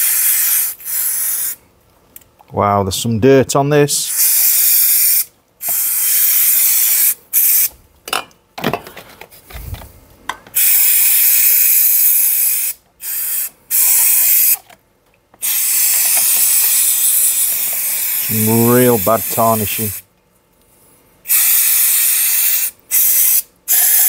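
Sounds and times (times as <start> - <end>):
aerosol can spraying: 0.0 - 1.6, 4.1 - 7.7, 10.6 - 14.6, 15.4 - 20.0, 21.3 - 24.0.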